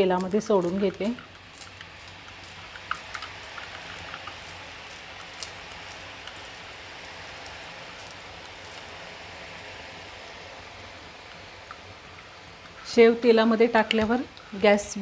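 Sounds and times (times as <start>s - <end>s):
oil popping: 0.0s - 9.0s
dough frying in hot oil: 0.0s - 15.0s.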